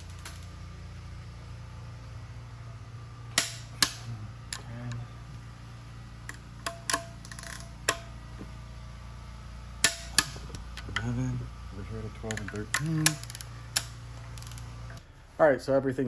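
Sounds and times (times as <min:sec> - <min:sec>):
steady low hum: 0:00.0 - 0:16.0
wrench clicking on bolts: 0:06.3 - 0:08.1, 0:12.2 - 0:14.6.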